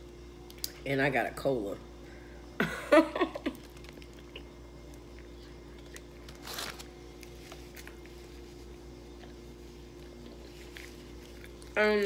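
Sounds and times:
faint steady hum: 0.0s - 12.0s
aluminium foil crackle: 5.8s - 8.3s.

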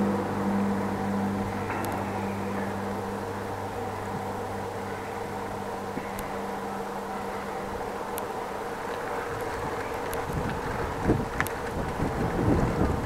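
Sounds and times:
low drone: 0.0s - 13.0s
mechanical hum and rumble: 0.0s - 13.0s
faint ticks: 8.1s - 13.0s.

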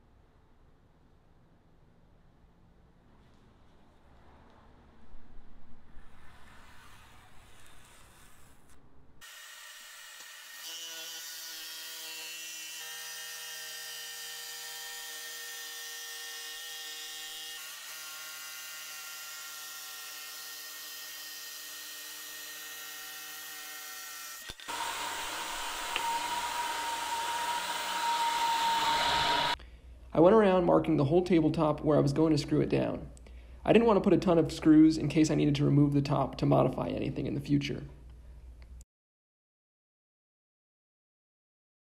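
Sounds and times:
jigsaw motor whine: 9.2s - 29.6s
shop vac hose sucking: 24.4s - 29.6s.

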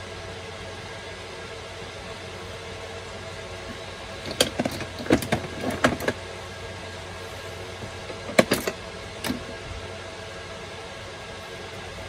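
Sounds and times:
screwdrivers clattering: 4.2s - 6.2s, 8.1s - 9.4s.

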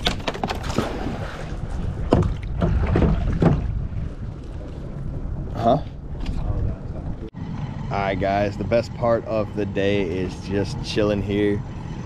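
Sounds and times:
water splashes: 0.0s - 6.6s
water lapping against kayak: 0.0s - 7.3s
wind rumble on microphone: 0.0s - 7.4s.

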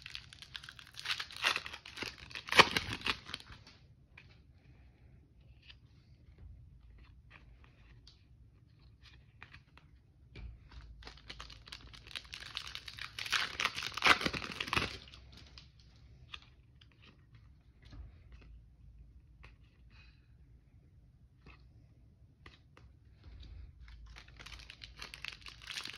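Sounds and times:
foil wrapper tearing and crinkling: 0.0s - 3.6s, 11.0s - 15.4s, 24.1s - 25.9s.

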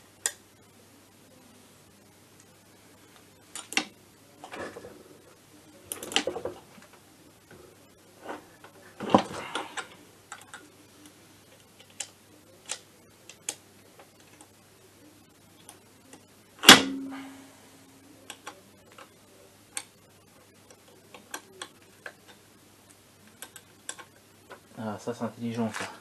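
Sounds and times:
loud metallic clank: 16.7s - 17.3s.

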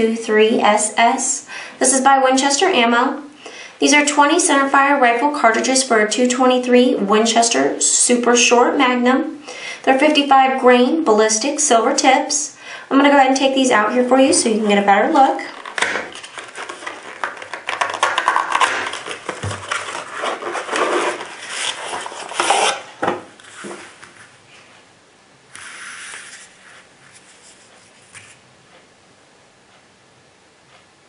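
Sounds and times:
cartridge scraping from tray: 15.5s - 23.9s
cardboard box rustling and scraping: 15.5s - 24.2s.

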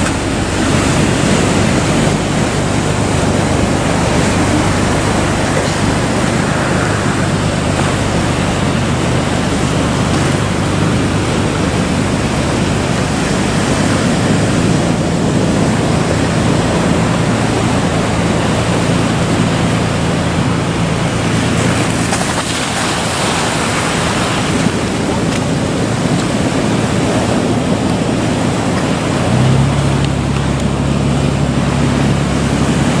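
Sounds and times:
boat engine hum: 0.0s - 33.0s
waves breaking: 0.0s - 33.0s
wind on microphone: 0.0s - 33.0s.

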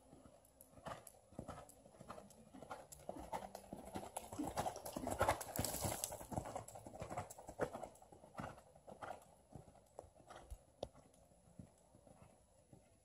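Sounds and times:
horse hooves on sand: 0.0s - 13.0s.

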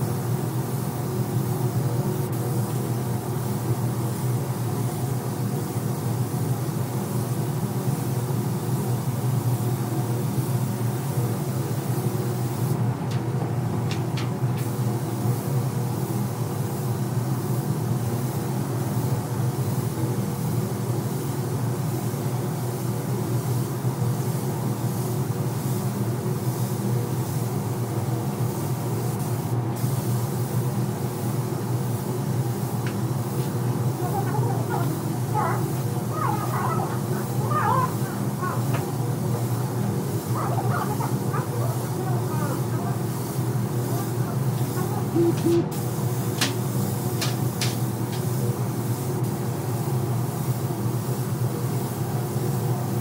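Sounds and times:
spray gun hissing: 0.0s - 12.8s, 13.4s - 53.0s
low machine hum: 31.1s - 46.0s
short beeps: 45.2s - 45.7s.

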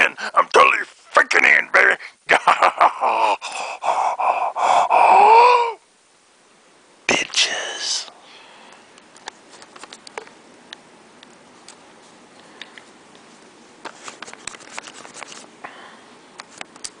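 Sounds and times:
camera handling clicks and rustling: 9.2s - 10.3s, 13.8s - 15.5s.

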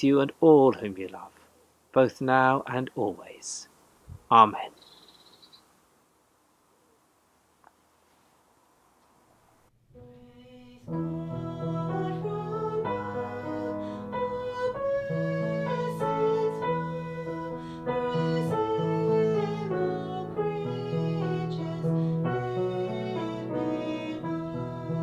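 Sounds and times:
hymn music on keyboard: 10.0s - 25.0s.

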